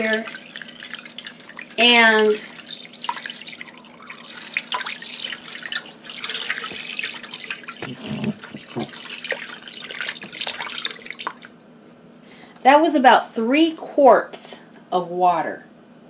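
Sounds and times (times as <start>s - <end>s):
water pouring into a metal pot: 0.0s - 11.7s.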